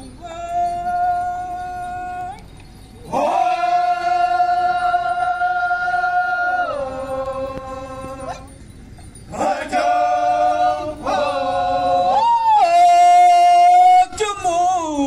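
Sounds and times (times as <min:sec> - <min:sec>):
men singing a chant together: 0:03.1 - 0:08.5, 0:09.3 - 0:15.0.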